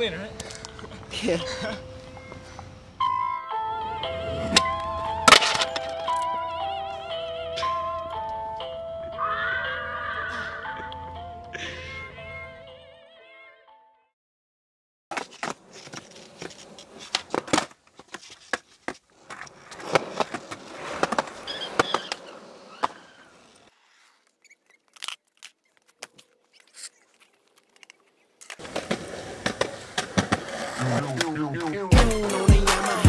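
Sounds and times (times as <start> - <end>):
skateboard wheels rolling on concrete: 0.0 - 11.5, 15.1 - 33.0
skateboard clacks: 15.1 - 23.2, 28.6 - 31.9.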